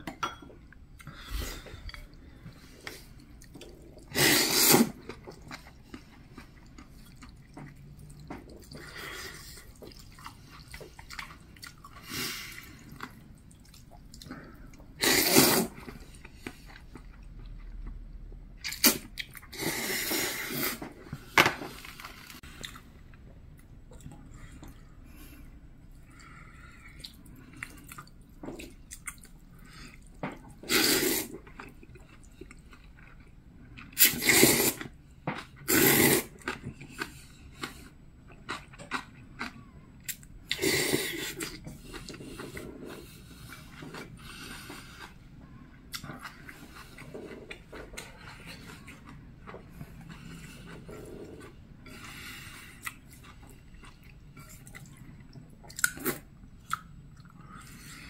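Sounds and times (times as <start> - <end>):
man slurping noodles: 4.1 - 5.0, 15.0 - 15.8, 35.7 - 36.3
chewing: 4.9 - 14.9, 25.9 - 34.1, 36.3 - 58.0.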